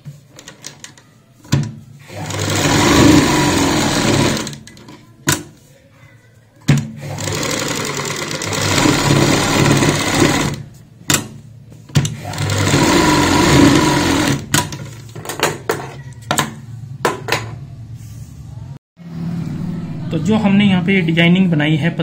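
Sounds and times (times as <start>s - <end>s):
sewing machine stitching: 2.0s - 4.9s, 7.0s - 10.6s, 12.0s - 14.9s.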